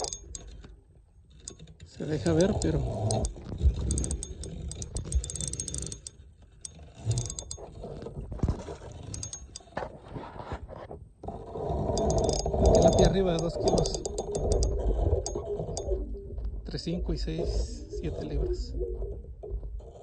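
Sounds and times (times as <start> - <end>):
fishing reel gears clicking: 0.0 - 0.7, 1.4 - 7.8, 8.9 - 9.8, 11.8 - 15.9.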